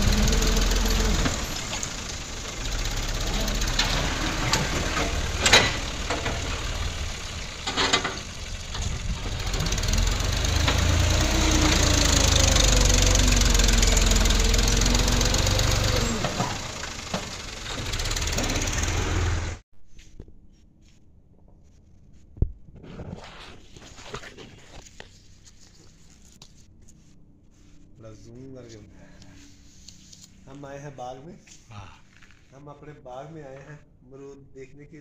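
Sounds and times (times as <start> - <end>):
tractor diesel engine under load: 0.0 - 19.6.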